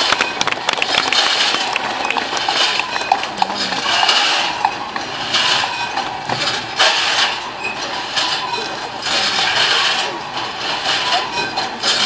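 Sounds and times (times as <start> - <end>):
metallic clicks and clanks: 0.0 - 12.0.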